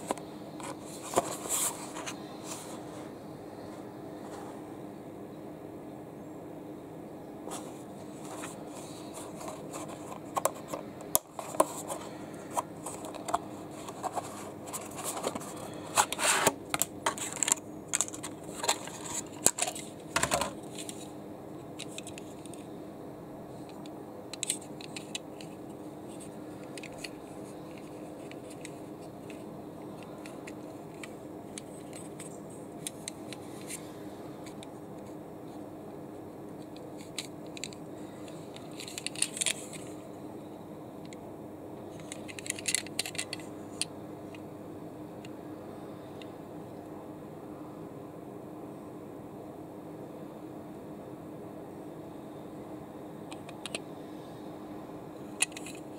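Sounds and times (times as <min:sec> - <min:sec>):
steady low hum: 0:00.0 - 0:55.9.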